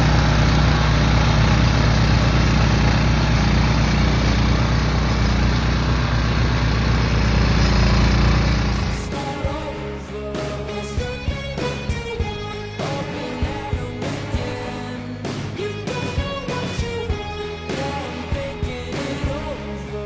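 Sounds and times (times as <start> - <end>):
blade cutting through soil: 0.0 - 9.1
small gas engine running: 0.0 - 9.7.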